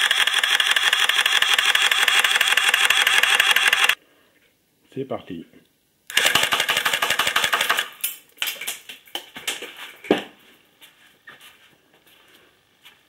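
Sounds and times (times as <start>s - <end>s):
airsoft gun rattling fire: 6.1s - 8.8s.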